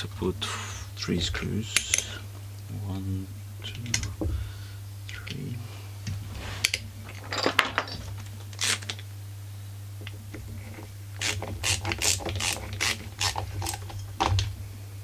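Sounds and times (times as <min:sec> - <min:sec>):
ratcheting screwdriver clicking: 0:11.2 - 0:13.8.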